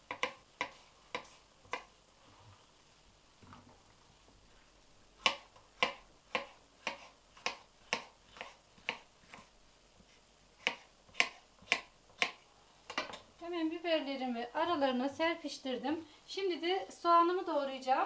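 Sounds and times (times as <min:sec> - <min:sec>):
knife chopping on wooden board: 0:00.0 - 0:01.9, 0:05.2 - 0:09.5, 0:10.6 - 0:13.2.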